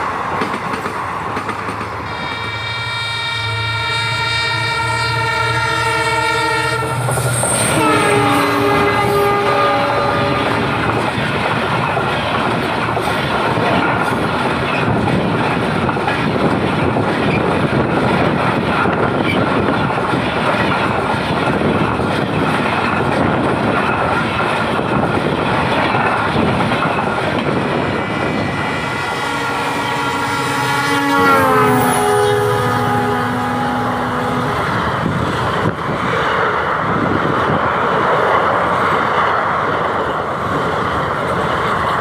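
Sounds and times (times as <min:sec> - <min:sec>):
train wheels rolling on rails: 0:00.0 - 0:02.8, 0:03.4 - 0:42.0
locomotive multi-note horn: 0:02.0 - 0:11.0, 0:28.0 - 0:35.1.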